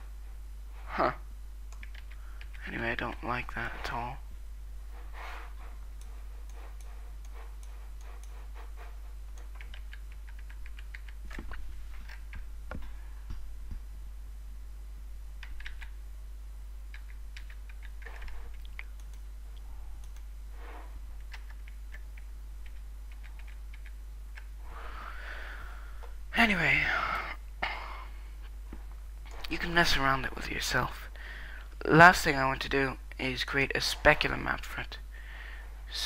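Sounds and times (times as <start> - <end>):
low mains hum: 0.0 - 36.0
computer keyboard typing: 1.7 - 3.2, 9.3 - 12.4, 15.4 - 16.0, 16.9 - 19.2, 21.2 - 24.5
mouse clicking: 1.7 - 3.2, 9.4 - 12.5, 15.4 - 16.0, 16.9 - 19.3, 20.0 - 20.3, 21.2 - 24.5.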